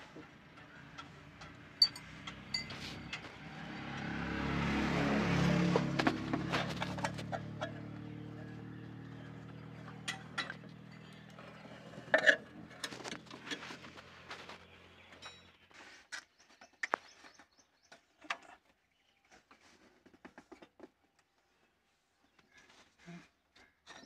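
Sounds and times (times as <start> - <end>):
tool clicks and metal clinks: 1.0 - 3.3.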